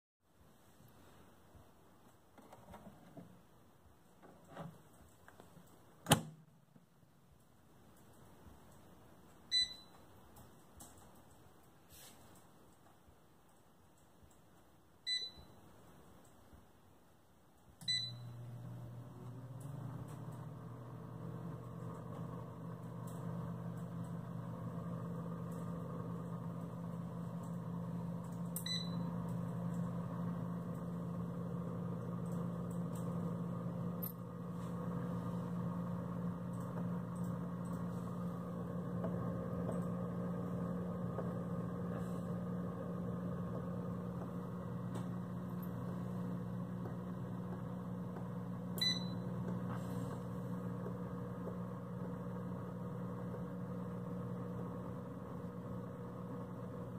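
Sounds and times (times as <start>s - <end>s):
touch panel beeps: 9.5s - 10.0s, 15.1s - 15.6s, 17.8s - 18.4s, 28.6s - 29.1s, 48.8s - 49.2s
fan humming: 18.0s - 56.9s.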